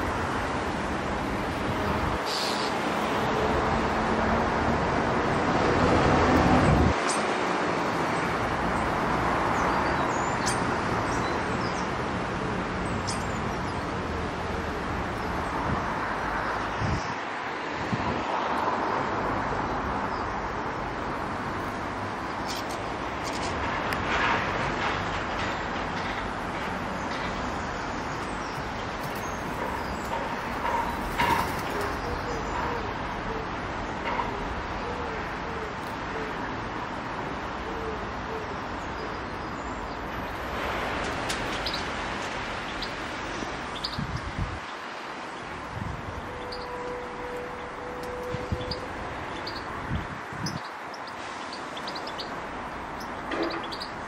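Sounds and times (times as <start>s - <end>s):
outdoor rumble and hiss: 0.0s - 54.0s
faint garden bird calls: 2.2s - 2.8s, 27.0s - 36.4s, 46.2s - 54.0s
low curved bird call notes: 46.2s - 49.7s.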